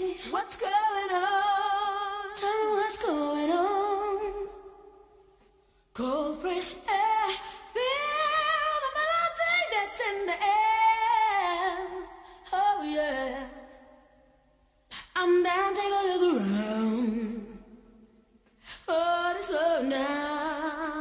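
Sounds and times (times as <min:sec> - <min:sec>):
woman singing: 0:00.0 - 0:05.1, 0:05.9 - 0:14.1, 0:14.9 - 0:18.1, 0:18.7 - 0:21.0.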